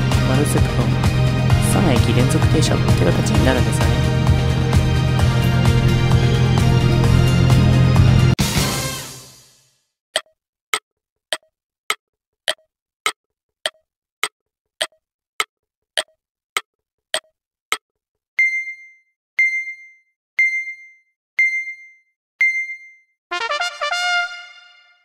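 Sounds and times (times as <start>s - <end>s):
high beeps: 18.4s - 23.0s.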